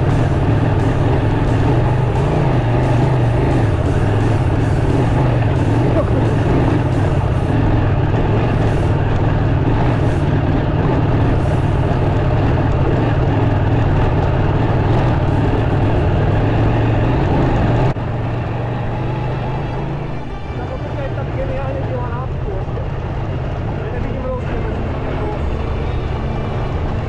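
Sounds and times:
motorcycle engine running: 0.0 - 27.0.

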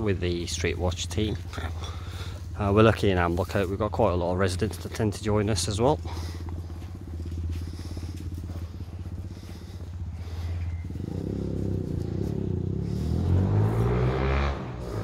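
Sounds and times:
vehicle engine passing by: 4.5 - 15.0.

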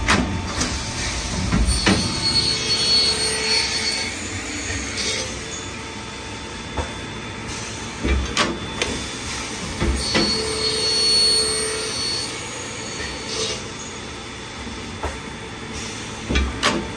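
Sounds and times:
circular cold saw running: 0.0 - 6.1
saw whine: 0.4 - 7.2, 8.7 - 13.9.

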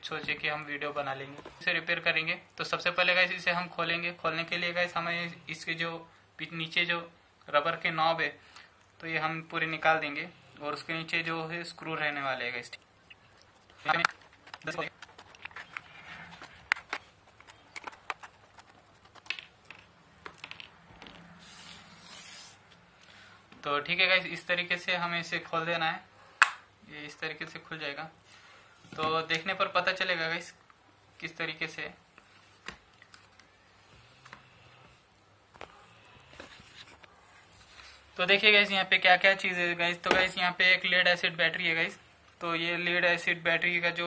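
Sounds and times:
plastic base scraping: 14.0 - 19.3.

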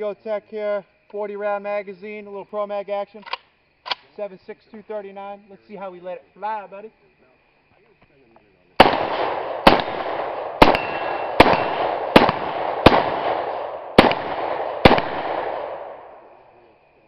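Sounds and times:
rifle shots: 8.8 - 16.4
rolling echo of gunshots: 8.8 - 16.4.

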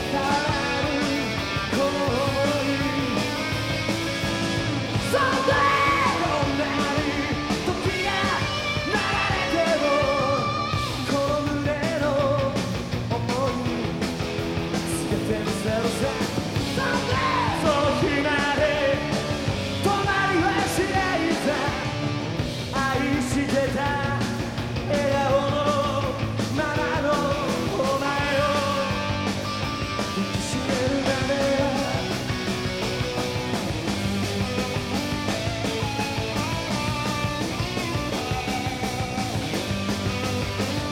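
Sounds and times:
man singing into microphone: 0.0 - 3.3, 5.0 - 13.7, 14.9 - 22.0, 22.7 - 29.1, 30.2 - 32.1
rock band playing live: 0.0 - 40.9.

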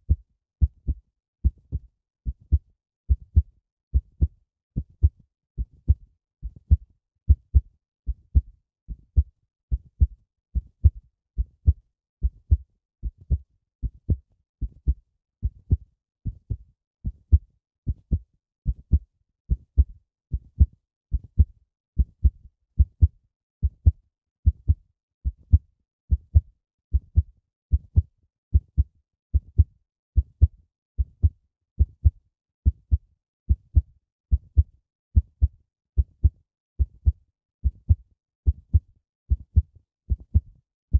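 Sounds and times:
heartbeat thumps: 6.7 - 8.5, 11.6 - 14.8, 23.8 - 27.2, 28.6 - 32.2, 37.0 - 40.5.

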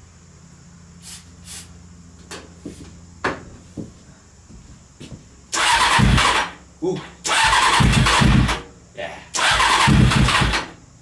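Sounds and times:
motorcycle engine cranking on starter: 5.5 - 6.6, 7.2 - 8.6, 9.4 - 10.8.

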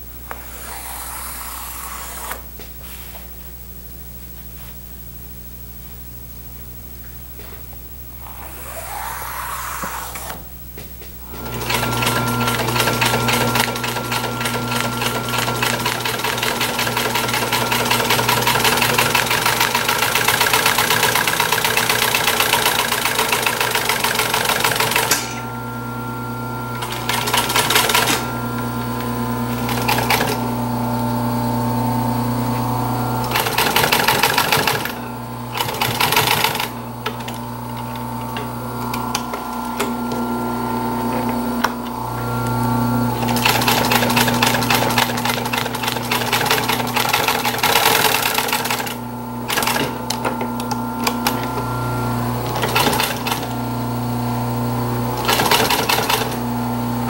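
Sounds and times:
steady hum: 0.0 - 22.1
sewing machine stitching: 11.3 - 25.4, 26.8 - 28.3, 29.5 - 30.5, 33.2 - 40.2, 43.2 - 51.6, 52.4 - 53.6, 55.2 - 56.4.

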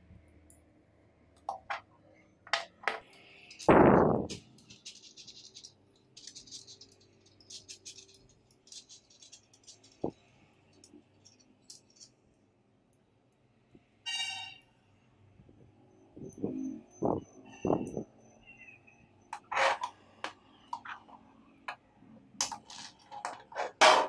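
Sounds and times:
magnetic balls clicking and rattling: 1.4 - 1.9, 2.5 - 12.3, 19.3 - 24.0.

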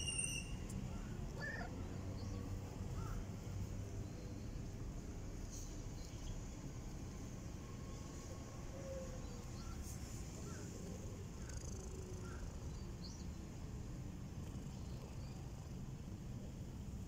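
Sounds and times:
cat purring: 10.7 - 12.7, 14.1 - 17.0.

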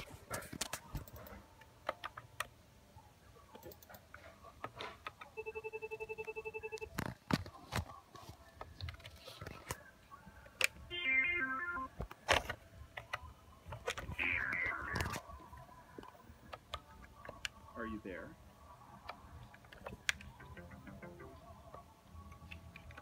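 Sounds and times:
desk phone trilling ringtone: 10.9 - 11.9.

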